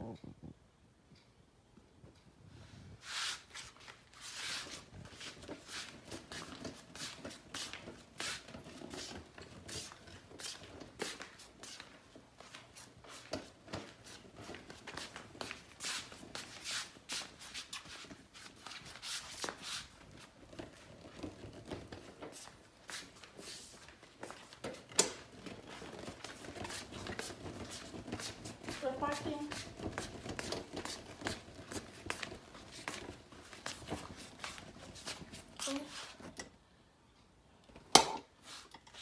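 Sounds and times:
footsteps: 3.0s - 36.4s.

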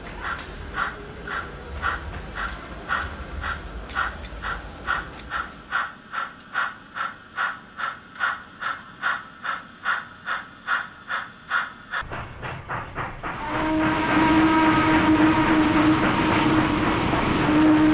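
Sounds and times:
steam locomotive chuffing: 0.0s - 17.9s
steam whistle: 13.4s - 17.9s.

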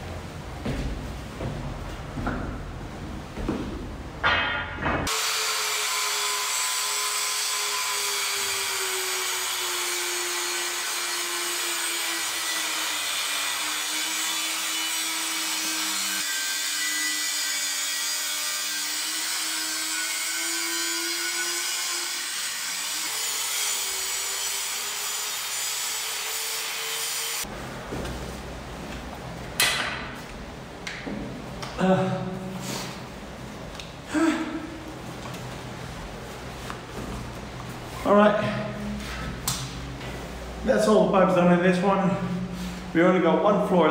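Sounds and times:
sharp knocks: 4.2s - 5.1s
angle grinder cutting pipe: 5.1s - 27.5s.

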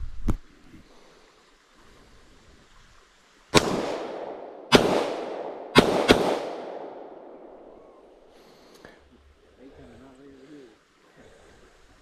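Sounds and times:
pistol shots with echo: 3.6s - 7.7s.

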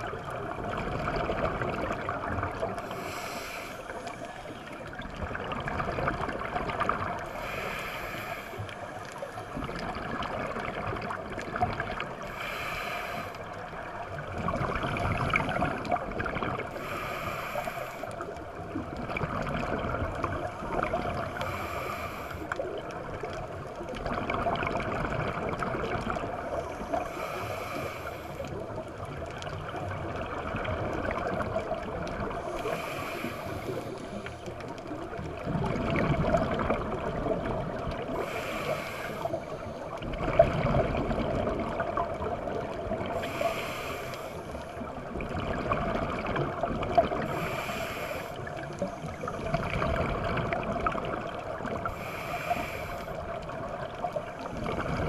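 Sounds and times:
exhaled bubbles rushing: 0.0s - 2.9s, 4.9s - 7.3s, 14.0s - 16.7s, 22.8s - 26.5s, 34.7s - 38.3s, 39.9s - 43.3s, 44.8s - 47.5s, 48.4s - 51.9s, 53.2s - 55.0s
regulator breath hiss: 2.8s - 4.6s, 7.3s - 9.5s, 12.3s - 13.5s, 16.7s - 18.2s, 21.4s - 22.6s, 26.8s - 28.5s, 32.4s - 34.4s, 38.2s - 39.7s, 43.2s - 44.7s, 47.3s - 48.6s, 51.8s - 53.2s.

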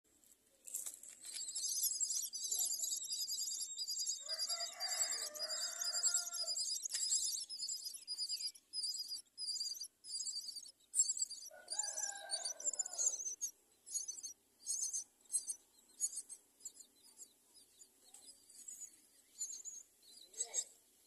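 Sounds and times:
nestlings begging calls: 0.7s - 20.8s
lower-pitched bird call: 2.5s - 16.4s.

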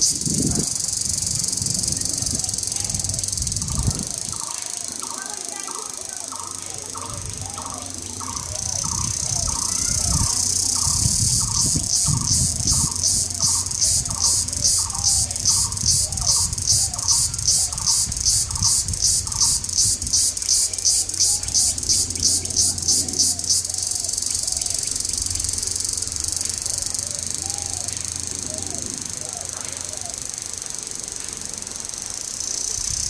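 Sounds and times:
shrill insect buzz: 0.0s - 33.0s
bird call repeating: 3.6s - 19.7s.

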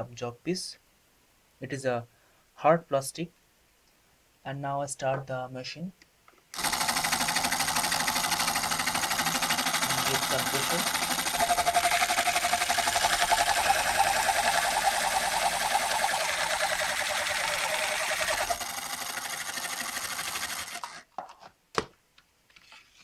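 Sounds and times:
drill motor buzzing whir: 6.6s - 21.0s.

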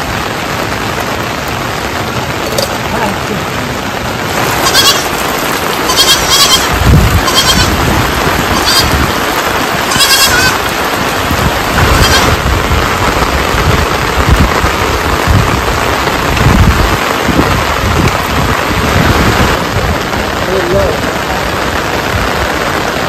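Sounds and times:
heavy rain: 0.0s - 23.0s
goat bleating: 4.4s - 9.2s, 9.8s - 10.8s, 11.7s - 12.4s.

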